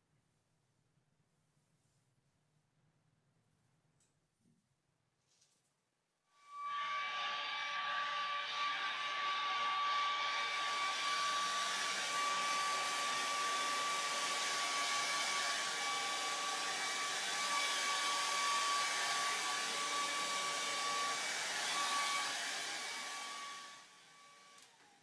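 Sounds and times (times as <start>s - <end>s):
hair dryer blowing: 7.0s - 25.0s.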